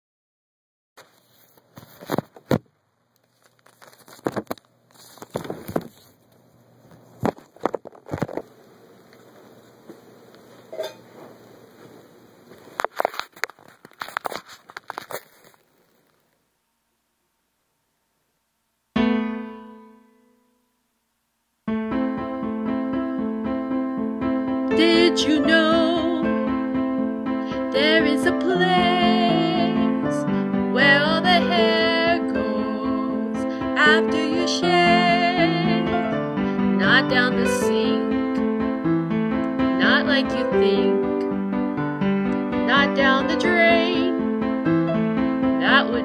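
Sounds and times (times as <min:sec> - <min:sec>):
electric piano chords: 0:19.0 - 0:20.4, 0:21.7 - 0:46.0.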